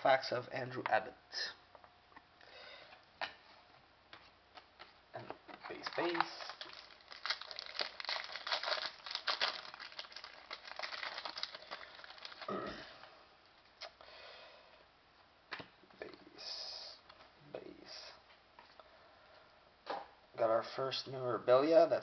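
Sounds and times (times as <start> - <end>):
foil wrapper crinkling: 5.6 - 12.5.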